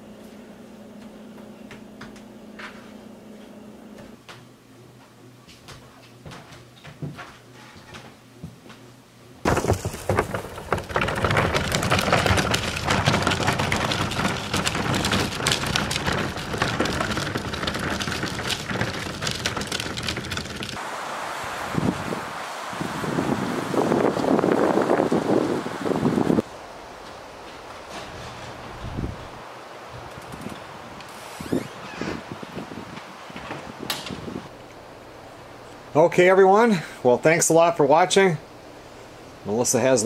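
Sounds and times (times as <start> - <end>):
fire crackling and rushing: 9.5 - 20.8.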